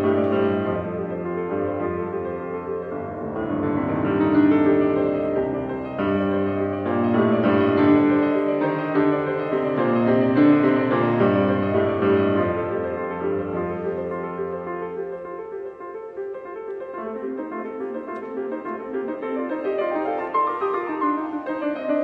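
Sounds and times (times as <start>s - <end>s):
grand piano chords: 0.0s - 22.0s.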